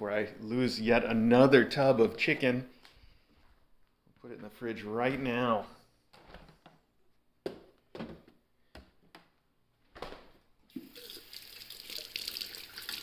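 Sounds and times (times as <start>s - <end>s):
hands rinsed under tap: 10.7s - 13.0s
water running into sink: 10.7s - 13.0s.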